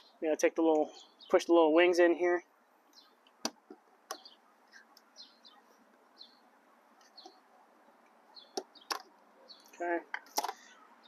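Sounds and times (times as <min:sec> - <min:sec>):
faint bird chirps: 0:00.0 - 0:01.5, 0:04.1 - 0:07.6.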